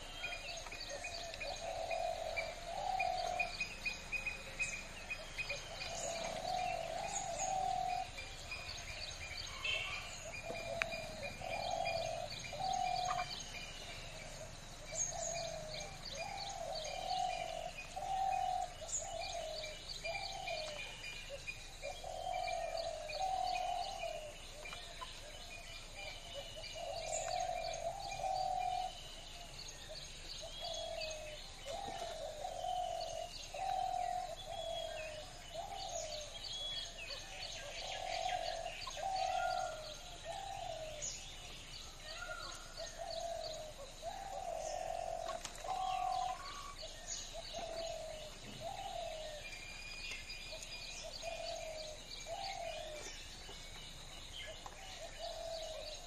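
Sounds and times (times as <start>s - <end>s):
low cooing bird: 0.0s - 53.4s, 54.4s - 56.0s
birds chirping and twittering: 0.0s - 56.0s.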